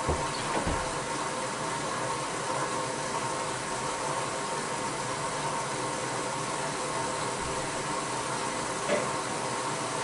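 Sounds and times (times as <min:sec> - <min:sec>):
low thumps: 0:00.0 - 0:01.0
water running into washing machine: 0:00.0 - 0:10.0.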